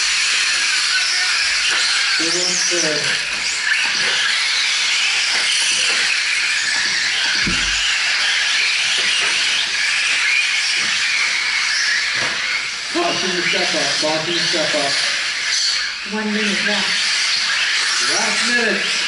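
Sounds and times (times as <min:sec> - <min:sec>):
rc truck motors whining: 0:00.0 - 0:19.0
low thump: 0:07.4 - 0:07.9.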